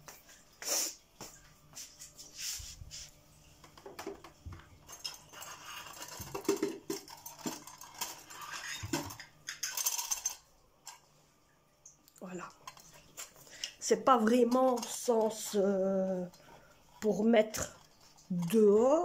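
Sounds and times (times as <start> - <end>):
small objects clinking and rustling: 3.8 - 11.0.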